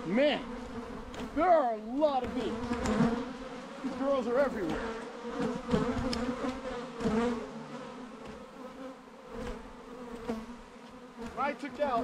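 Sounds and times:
dense buzz of bee swarm: 0.0 - 12.0
single bees flying past: 0.0 - 12.0.

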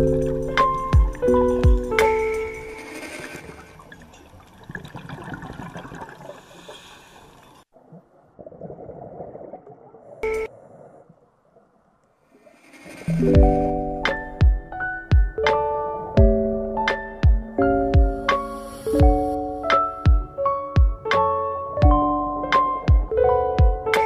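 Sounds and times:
piano music: 0.0 - 3.0, 13.1 - 24.0
underwater water rushing: 2.0 - 11.8.

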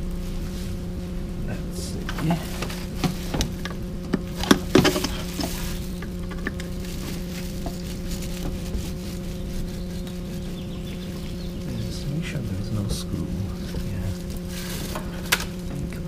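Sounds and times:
low hum: 0.0 - 16.0
clicks and knocks in engine bay: 2.1 - 6.7.

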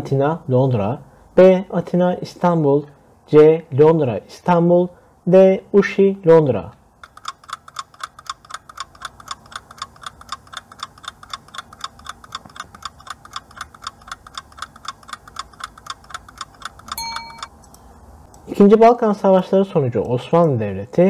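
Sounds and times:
clock ticking: 7.0 - 17.5.

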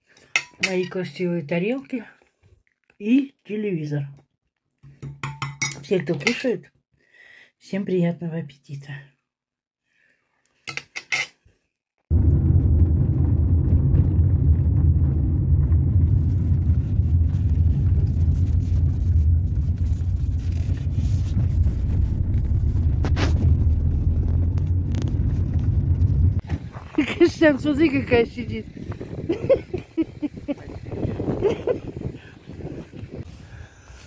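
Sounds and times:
car interior rumble: 12.1 - 28.4.

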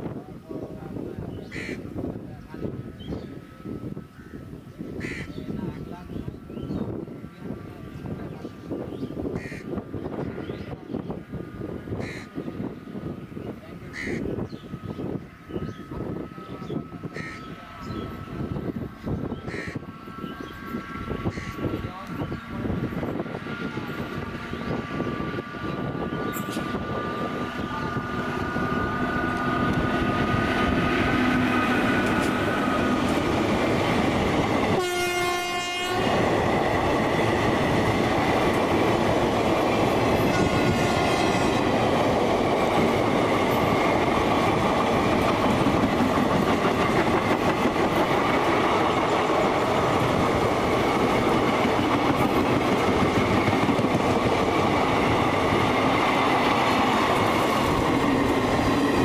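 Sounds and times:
train passing at speed: 0.0 - 59.0
wheels clacking on rails: 14.4 - 59.0
train horn blast: 34.7 - 36.3, 40.2 - 41.7.

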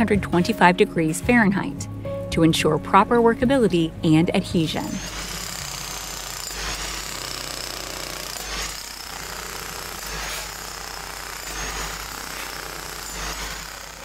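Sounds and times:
jackhammer hammering asphalt: 4.6 - 14.0.

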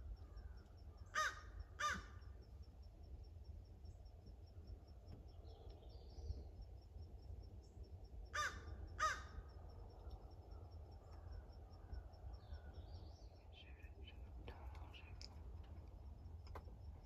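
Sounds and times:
crow cawing: 0.2 - 2.2, 8.3 - 9.5.

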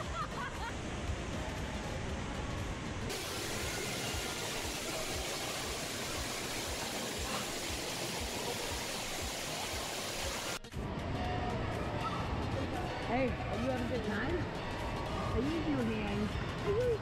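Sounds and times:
rushing water hiss: 3.1 - 10.6.

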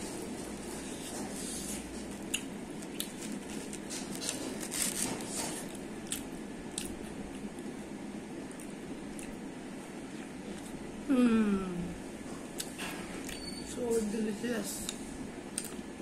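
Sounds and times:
pizza slice tearing crackles: 2.1 - 5.8.

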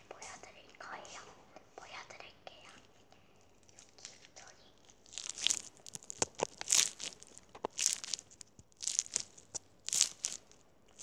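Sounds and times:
slime crackling and popping: 3.7 - 11.0.

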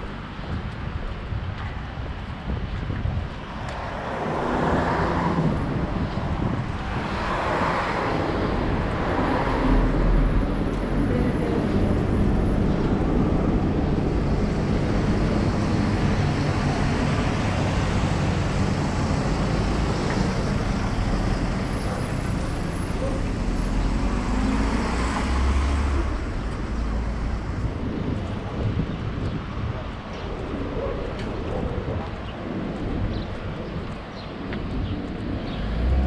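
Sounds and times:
vehicles passing: 0.0 - 36.0
low engine rumble: 8.4 - 29.9.

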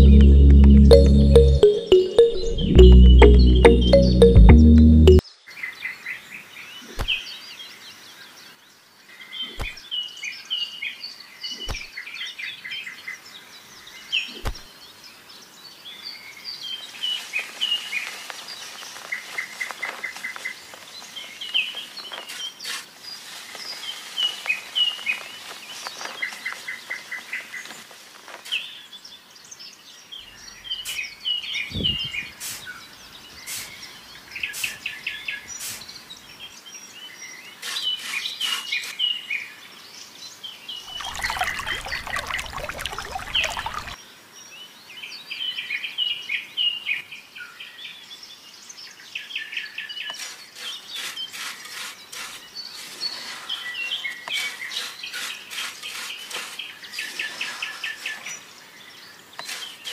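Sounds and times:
small birds chirping and trilling: 28.5 - 59.9.

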